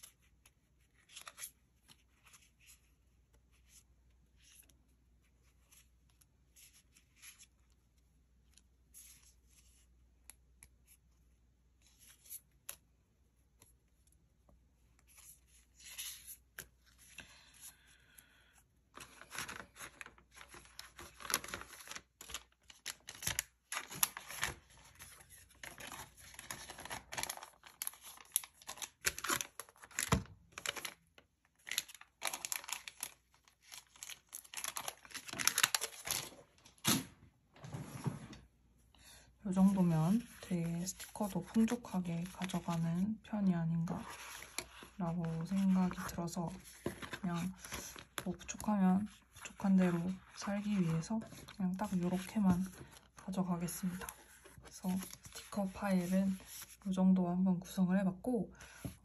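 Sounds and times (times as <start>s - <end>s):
paper and plastic rustling: 19.0s - 31.0s, 31.6s - 38.4s, 43.9s - 56.9s.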